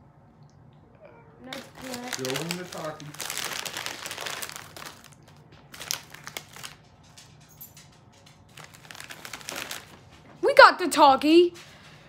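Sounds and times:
plastic chip bag crinkling: 0:01.4 - 0:10.2.

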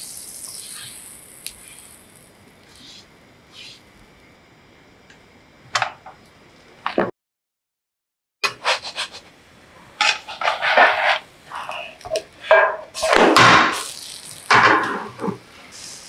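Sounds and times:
spatula scraping frying pan: 0:10.0 - 0:11.8.

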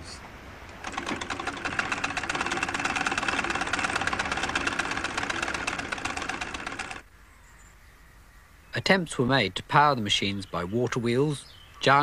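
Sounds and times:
sewing machine clattering: 0:00.8 - 0:07.0.

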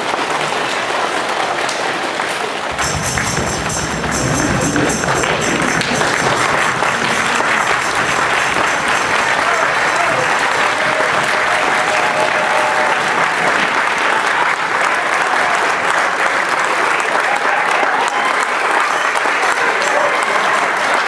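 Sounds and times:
audience applauding: 0:00.0 - 0:21.0.

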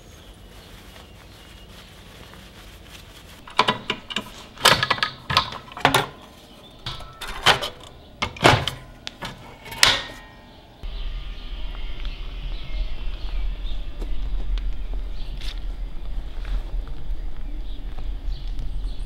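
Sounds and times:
metal fence clicking and knocking: 0:03.4 - 0:10.3.

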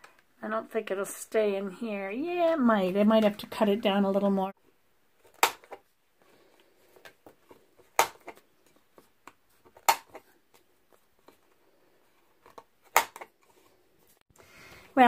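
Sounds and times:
corner punch snapping: 0:05.4 - 0:05.8, 0:08.0 - 0:08.4, 0:09.8 - 0:10.2.

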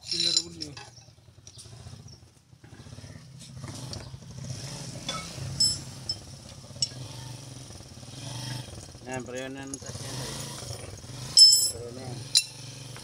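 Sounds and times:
metallic tool clinks: 0:00.0 - 0:00.9, 0:05.1 - 0:06.2, 0:11.4 - 0:12.6
vehicle engine running: 0:00.0 - 0:13.0.

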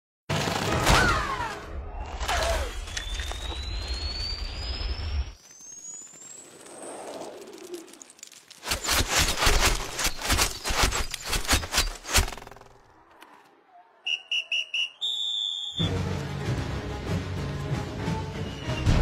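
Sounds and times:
music: 0:15.8 - 0:19.0.

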